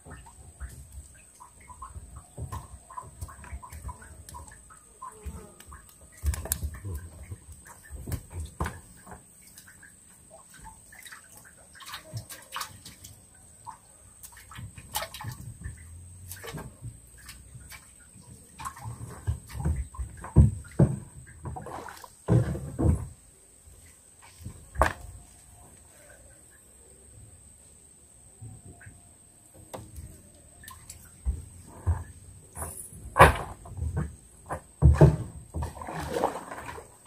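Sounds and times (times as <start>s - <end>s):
water sloshing: 0.0s - 23.2s, 29.6s - 37.0s
knocks and thumps: 18.9s - 23.2s, 31.2s - 36.4s.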